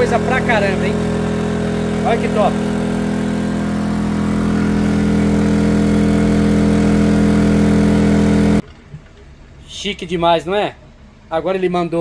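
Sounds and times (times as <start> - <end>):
portable generator running: 0.0 - 8.6.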